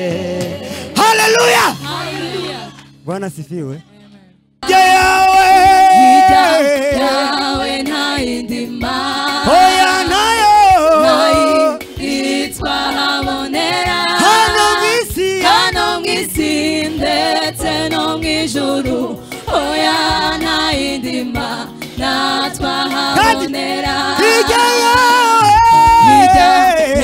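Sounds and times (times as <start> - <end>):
man singing lead: 0.0 - 1.8, 4.6 - 7.4, 9.4 - 11.8, 14.2 - 15.7, 23.1 - 27.0
choir singing: 0.0 - 2.9, 4.6 - 27.0.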